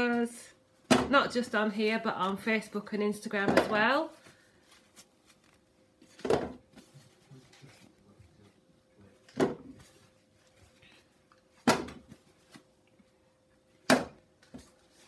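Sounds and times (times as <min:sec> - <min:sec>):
kitchen paper rustling: 0:02.2 - 0:08.5, 0:14.5 - 0:15.0.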